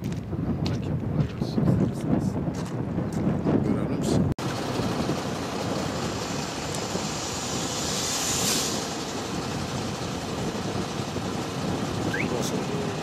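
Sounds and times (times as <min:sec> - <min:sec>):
heavy machinery and engines running: 0:04.4 - 0:13.0
brief hiss: 0:06.8 - 0:09.1.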